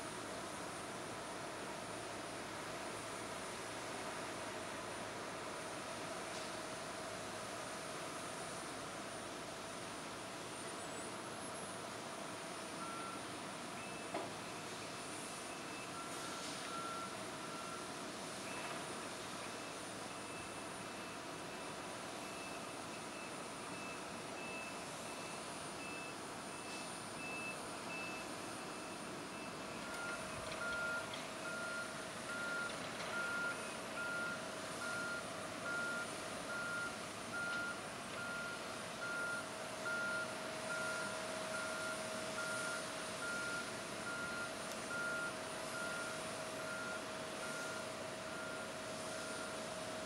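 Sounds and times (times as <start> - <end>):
backup alarm beeping: 23.7 - 49.6.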